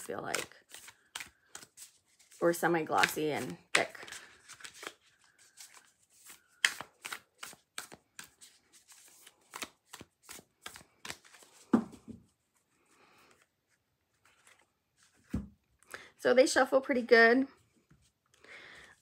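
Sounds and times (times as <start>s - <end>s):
cards slapping while shuffled: 0.0s - 12.2s.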